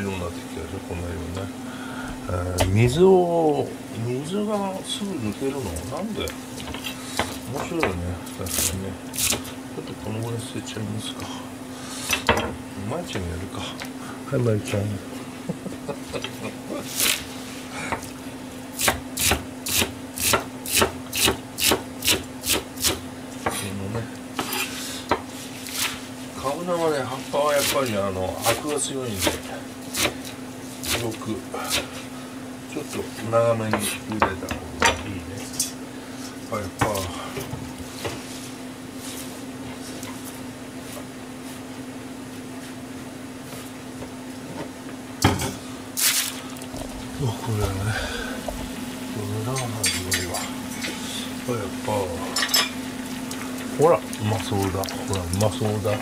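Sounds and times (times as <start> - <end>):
steady low hum: 0.0 - 56.0
knife chopping on cutting board: 6.6 - 9.5, 18.8 - 23.6, 28.5 - 31.9.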